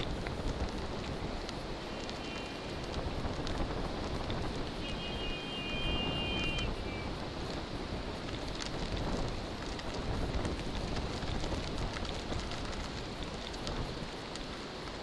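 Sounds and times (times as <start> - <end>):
small clicks: 0.0 - 5.0
bicycle tyres rolling on sand: 0.0 - 15.0
wind rumbling on microphone: 0.0 - 15.0.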